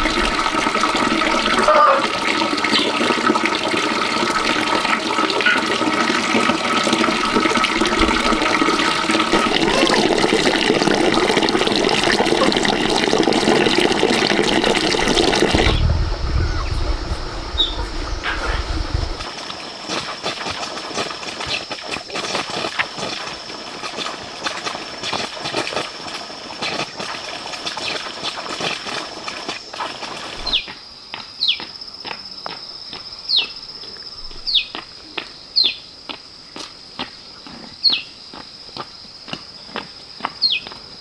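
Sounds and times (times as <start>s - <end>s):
high insect drone: 14.8s - 25.2s.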